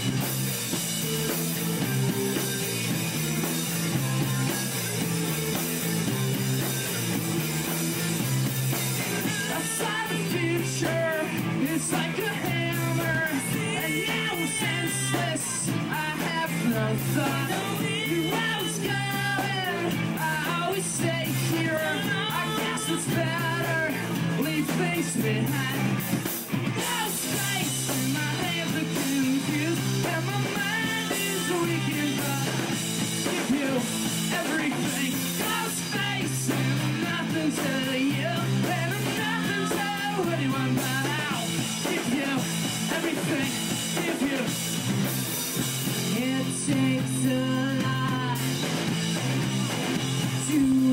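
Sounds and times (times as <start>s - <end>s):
bass guitar: 0.0s - 50.9s
distorted electric guitar: 0.0s - 50.9s
drum kit with cymbals: 0.0s - 50.9s
person singing lead vocal: 8.8s - 49.2s, 50.0s - 50.9s.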